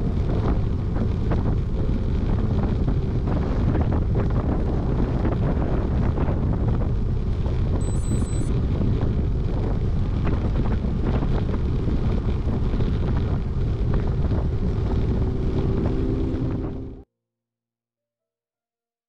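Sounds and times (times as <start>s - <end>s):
wind buffeting microphone: 0.0s - 17.0s
faint steady tone: 7.8s - 8.5s.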